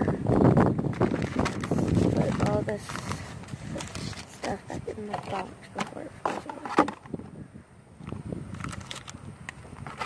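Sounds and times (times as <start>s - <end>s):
cardboard box handling rumble: 0.7s - 7.4s.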